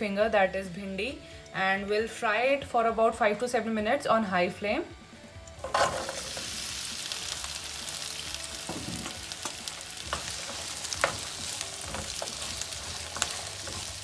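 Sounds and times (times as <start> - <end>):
okra sizzling in oil: 5.6 - 14.0.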